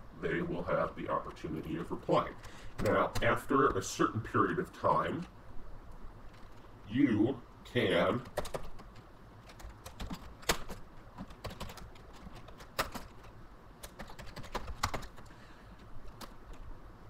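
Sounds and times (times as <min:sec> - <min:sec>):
computer keyboard typing: 0:06.3 - 0:06.6, 0:08.2 - 0:15.3, 0:16.1 - 0:16.6.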